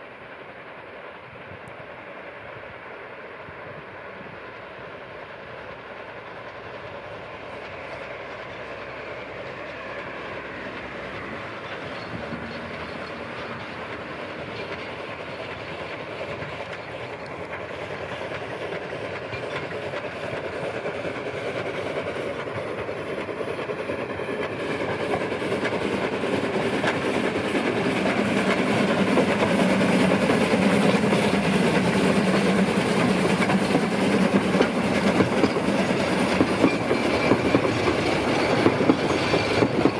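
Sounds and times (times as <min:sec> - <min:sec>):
steam locomotive chuffing: 0:00.0 - 0:39.9
wheels clattering on rails: 0:05.8 - 0:39.9.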